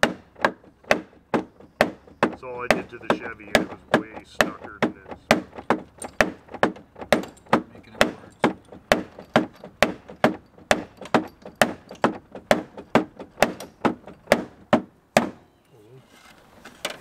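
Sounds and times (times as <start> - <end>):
hammer blows on wooden stick: 0.0 - 15.4.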